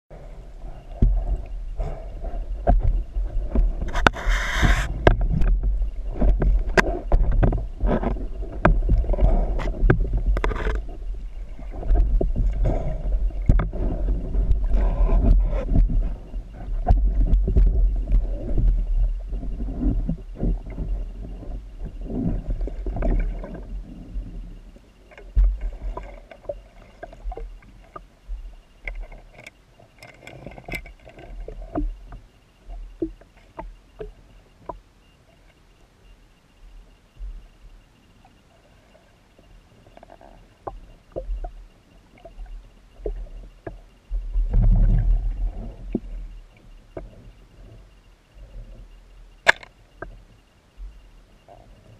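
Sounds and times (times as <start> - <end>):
underwater rumble of moving water: 0.1 - 51.9
sharp clicks and knocks: 49.4 - 50.2.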